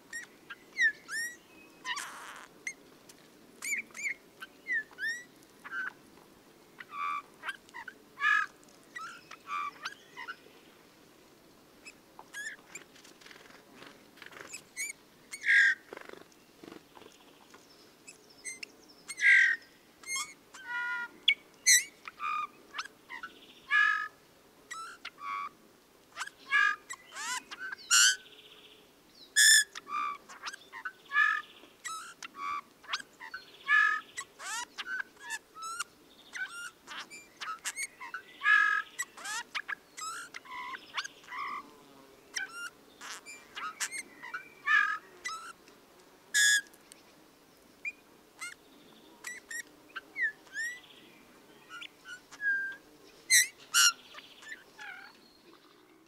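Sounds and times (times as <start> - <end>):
bird singing creaky notes: 0.1 - 2.5, 11.8 - 13.5, 29.4 - 41.7, 42.4 - 45.6, 46.4 - 46.7, 49.2 - 50.9, 51.7 - 56.0.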